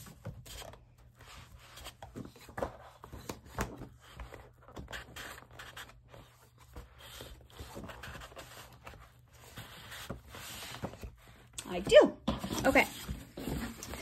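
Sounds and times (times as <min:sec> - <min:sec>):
paper sheets rustling and sliding: 0:03.9 - 0:11.2.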